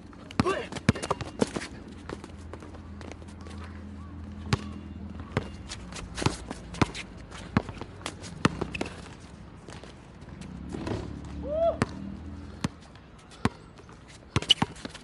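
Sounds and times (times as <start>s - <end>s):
basketball bouncing on court: 4.4s - 5.6s.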